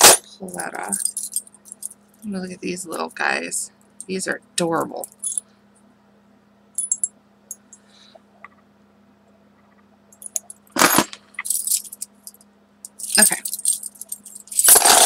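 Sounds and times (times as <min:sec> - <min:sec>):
metal keys jangling: 0:00.5 - 0:02.3, 0:05.0 - 0:05.4, 0:06.8 - 0:07.1, 0:11.4 - 0:15.0.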